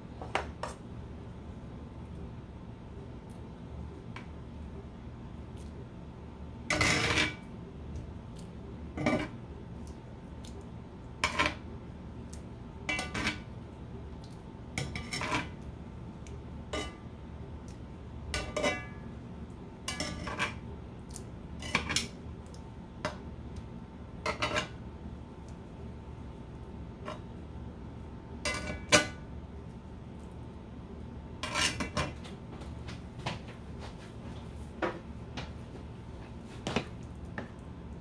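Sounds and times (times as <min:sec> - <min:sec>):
metal tongs clinking on a skillet: 0:12.9 - 0:13.4, 0:19.9 - 0:20.6.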